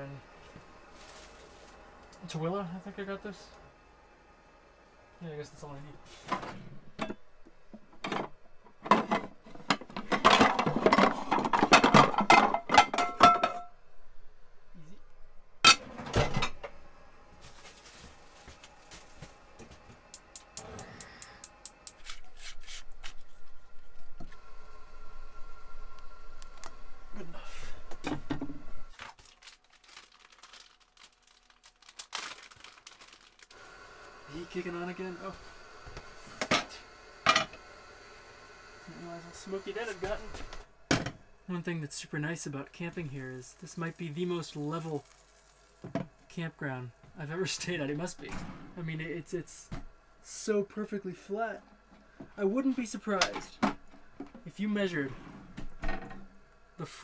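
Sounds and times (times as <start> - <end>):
heater humming: 0.0 - 28.9, 33.5 - 57.0
plastic packaging crinkling: 0.9 - 1.8, 28.9 - 33.6, 44.4 - 45.8
pots and pans clattering: 8.0 - 13.7, 15.6 - 16.7.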